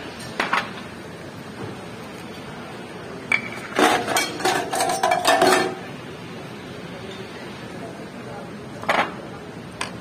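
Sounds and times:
ceramic bowls and utensils clinking: 0:03.3 - 0:05.9.

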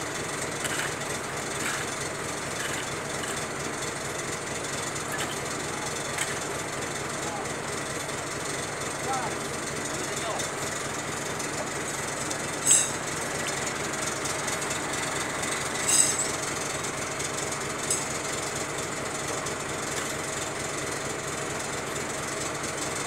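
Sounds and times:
engine knocking steadily: 0:00.0 - 0:23.0.

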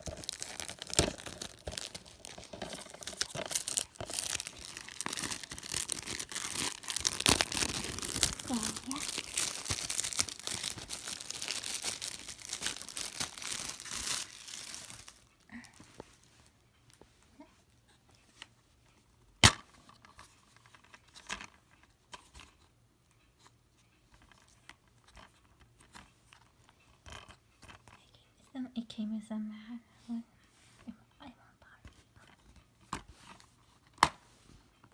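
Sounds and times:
shrink wrap crinkling and tearing: 0:00.0 - 0:16.4.

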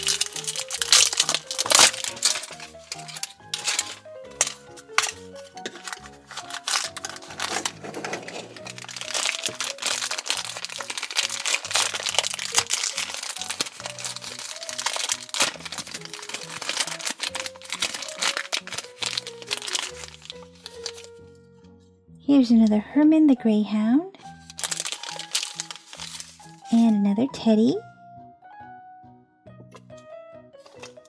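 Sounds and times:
plastic wrapper crinkling: 0:00.0 - 0:21.1, 0:24.2 - 0:27.0, 0:30.6 - 0:31.0
background music with held notes: 0:00.0 - 0:31.0.

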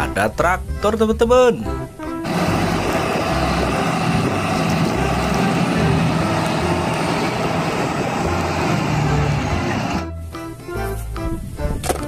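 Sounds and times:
tractor diesel engine under load: 0:02.2 - 0:10.0
mulcher over rough ground: 0:02.2 - 0:10.1.

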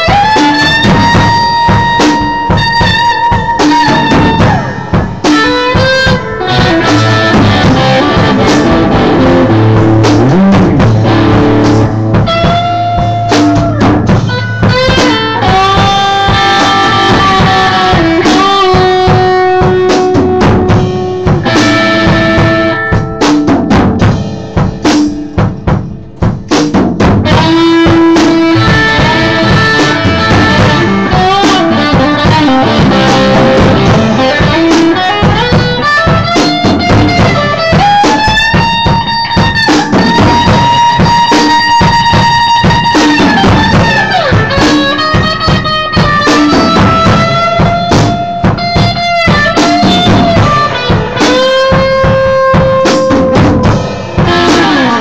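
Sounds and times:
electric guitar lead: 0:00.0 - 0:26.5, 0:27.2 - 0:55.0
drum kit beat: 0:00.0 - 0:55.0.

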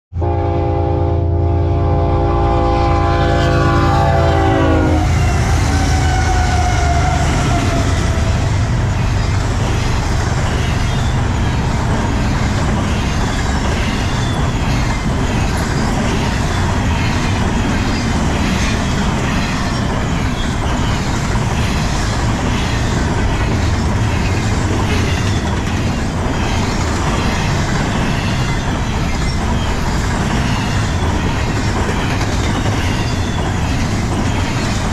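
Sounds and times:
train rumbling past: 0:00.1 - 0:34.9
locomotive air horn: 0:00.2 - 0:08.8
train wheels clickety-clack: 0:05.1 - 0:34.9.

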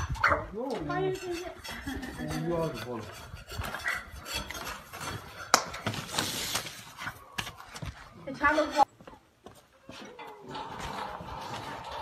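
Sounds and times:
objects clinking and scraping: 0:00.0 - 0:07.0.

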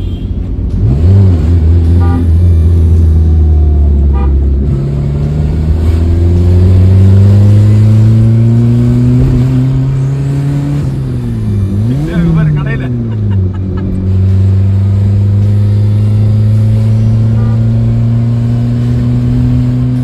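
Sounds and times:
car engine accelerating: 0:00.6 - 0:20.0.

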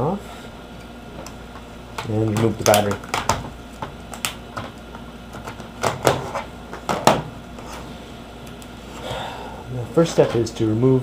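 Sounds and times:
sharp plastic clicks and knocks: 0:02.0 - 0:07.3.

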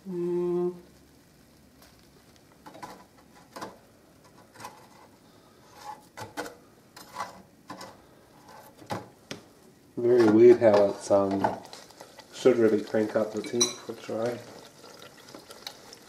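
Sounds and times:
hot oil hissing: 0:09.7 - 0:16.0.

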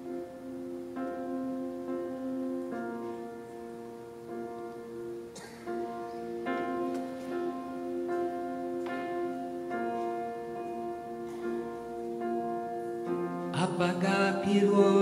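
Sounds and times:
grand piano chords: 0:00.0 - 0:15.0
person singing: 0:13.4 - 0:15.0.

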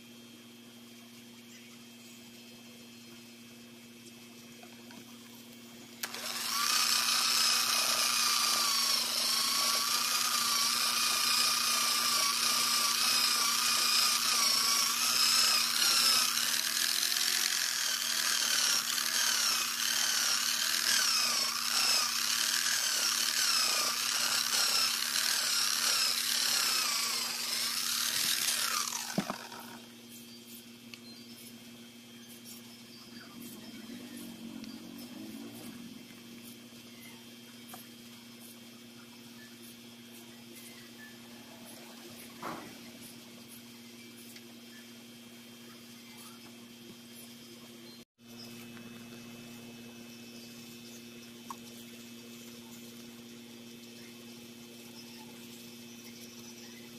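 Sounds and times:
buffing pad spinning down: 0:06.0 - 0:29.9
angle grinder motor whine: 0:06.0 - 0:30.0, 0:33.1 - 0:36.6.

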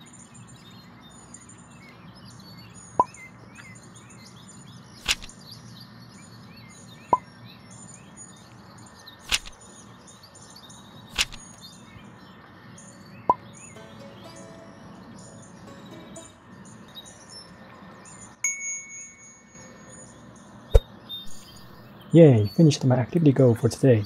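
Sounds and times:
small birds chirping: 0:00.0 - 0:18.4, 0:19.8 - 0:24.0
sharp clicks: 0:05.0 - 0:05.3, 0:09.3 - 0:09.6, 0:11.2 - 0:11.6.

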